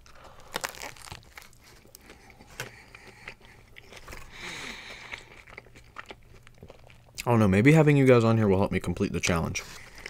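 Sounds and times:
biting into a sandwich: 0.0s - 7.1s
crunchy chewing: 0.0s - 7.3s.

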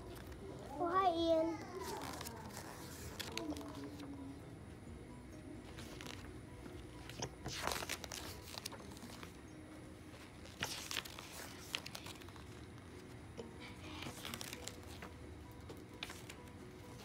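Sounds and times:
paper rustling and crinkling: 1.2s - 4.1s, 5.6s - 9.4s, 10.1s - 17.0s.

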